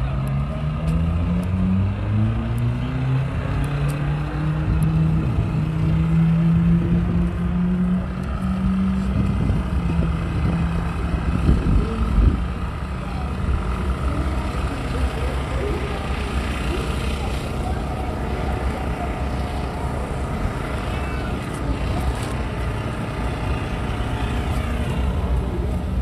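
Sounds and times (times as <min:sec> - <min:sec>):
car engine rolling past: 0:00.0 - 0:26.0
rough low engine rumble: 0:00.0 - 0:26.0.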